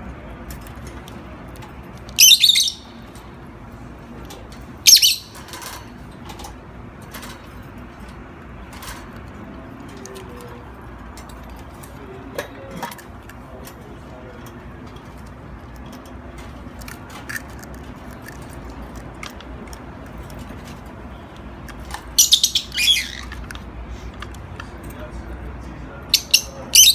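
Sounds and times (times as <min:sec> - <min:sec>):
lovebird shrill chirps: 0:02.2 - 0:02.9, 0:04.8 - 0:05.4, 0:22.2 - 0:23.3.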